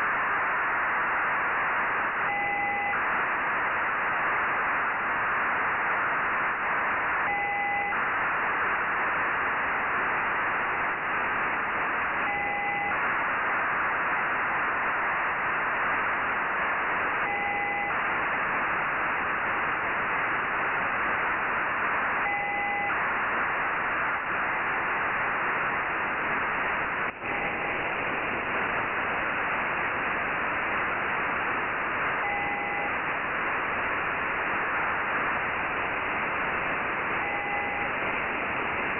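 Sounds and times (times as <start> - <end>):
radio receiver hiss: 0.0 - 38.9
short data bursts: 2.3 - 3.0, 7.3 - 8.0, 12.2 - 13.0, 17.2 - 18.0, 22.2 - 23.0, 32.2 - 33.0, 37.1 - 38.4.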